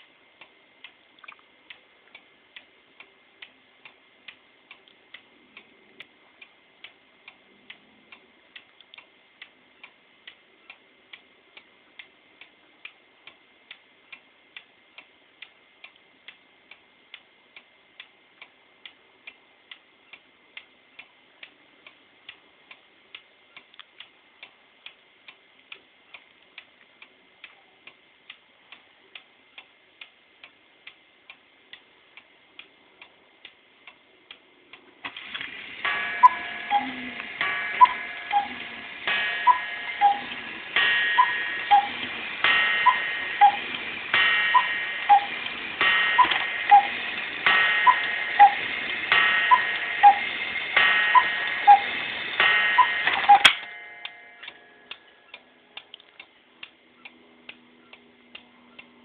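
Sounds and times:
clock ticking: 0:00.0 - 0:59.0
clockwork whirring: 0:33.0 - 0:55.6
two-note cuckoo call: 0:36.1 - 0:38.6, 0:39.4 - 0:40.4, 0:41.1 - 0:42.0, 0:42.8 - 0:43.6, 0:44.5 - 0:45.3, 0:46.2 - 0:47.0, 0:47.8 - 0:48.6, 0:49.5 - 0:50.3, 0:51.1 - 0:51.9.

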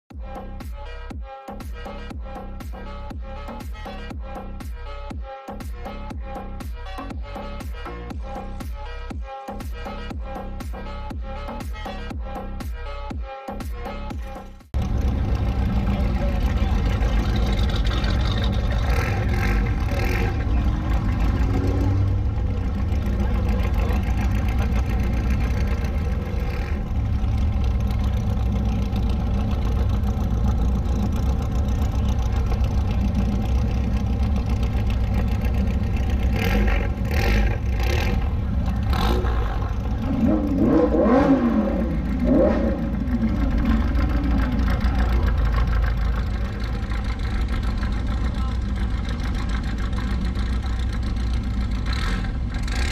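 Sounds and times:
sports car engine revving: 0:14.8 - 0:52.9.

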